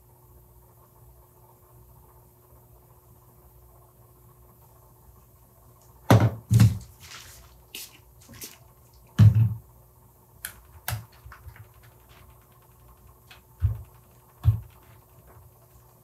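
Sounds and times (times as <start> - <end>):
dull knocks on workbench: 6.1 - 6.8, 9.2 - 9.6, 13.6 - 15.0.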